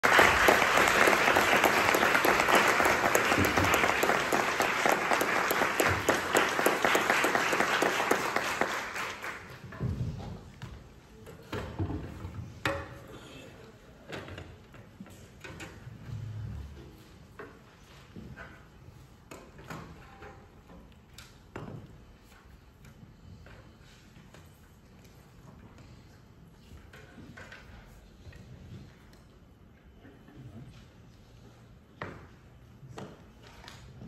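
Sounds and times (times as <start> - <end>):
audience applauding: 0.0 - 9.6
chairs moved on wooden stage: 0.0 - 13.2.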